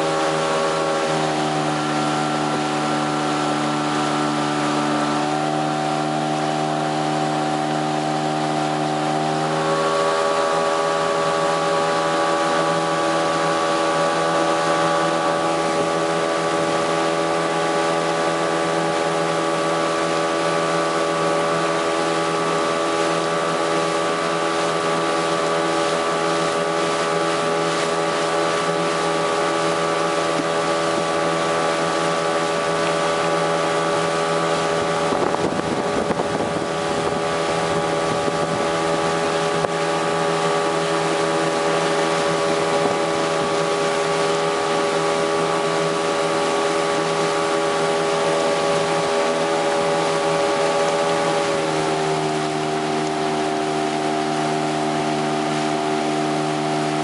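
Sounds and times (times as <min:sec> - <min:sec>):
outboard motor running: 0:00.0 - 0:57.0
wind buffeting microphone: 0:34.6 - 0:40.3.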